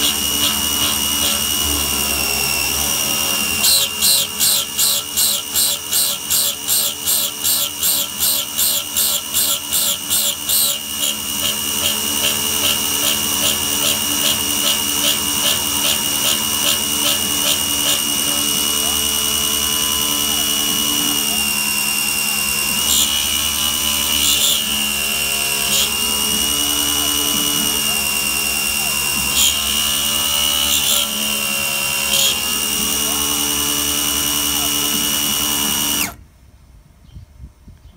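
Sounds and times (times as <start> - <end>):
milling machine spindle whining: 0.0 - 36.2
stepper motor tones: 0.0 - 36.3.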